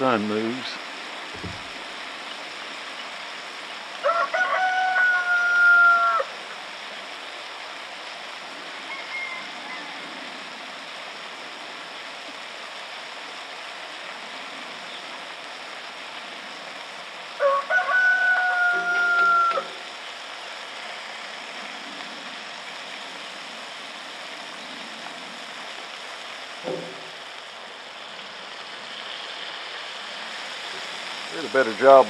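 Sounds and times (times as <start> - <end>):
steady hiss: 0.0 - 32.0
rooster crowing: 4.0 - 6.4, 8.8 - 10.1, 17.4 - 19.9.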